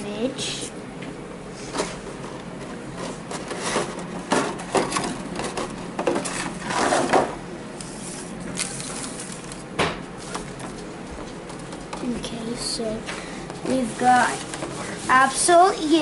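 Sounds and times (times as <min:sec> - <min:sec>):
plastic packaging crinkling: 0:08.5 - 0:09.7.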